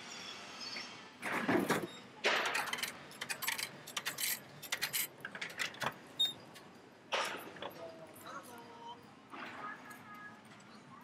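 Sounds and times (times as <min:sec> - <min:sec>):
metallic clinks and rattles: 0:02.4 - 0:05.9.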